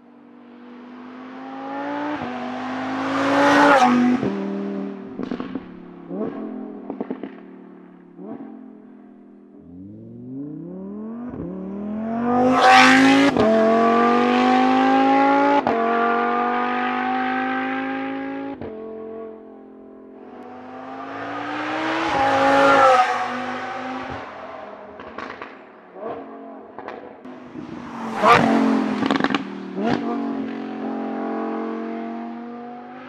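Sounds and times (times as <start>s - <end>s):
sports car engine accelerating: 0.6s - 33.0s
exhaust crackles and pops: 25.0s - 25.7s, 26.8s - 27.1s, 29.0s - 30.0s.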